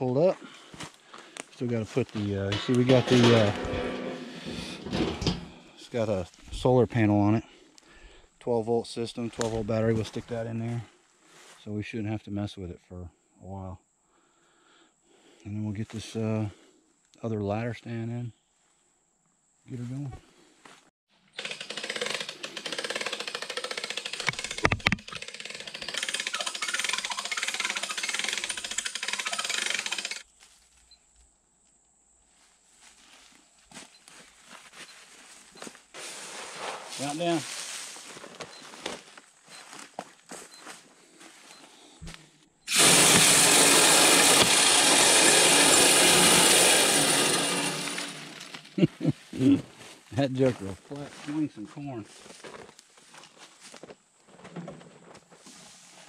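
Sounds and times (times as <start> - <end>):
corn rattling against wire cage: 2.5 - 5.6, 21.4 - 30.2
small gasoline engine running: 21.3 - 30.2, 42.7 - 48.8
feeder spinner motor whirring: 21.4 - 30.2, 42.7 - 48.7.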